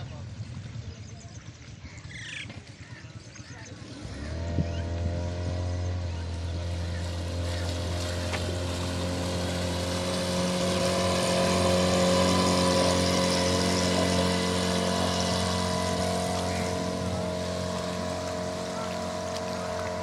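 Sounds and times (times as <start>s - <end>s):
outboard motor passing by: 0.0s - 20.0s.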